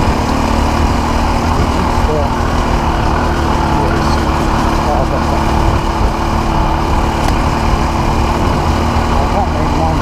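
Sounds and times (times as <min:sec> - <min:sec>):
motorcycle engine running: 0:00.0 - 0:10.0
wind rumbling on microphone: 0:05.5 - 0:10.0.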